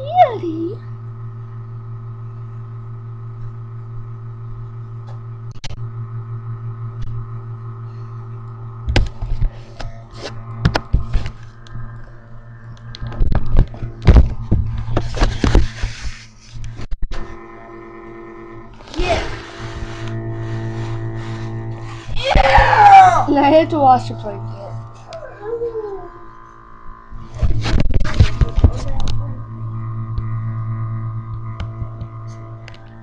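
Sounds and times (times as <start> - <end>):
music of steady held tones: 5.9 - 15.6, 17.2 - 33.0.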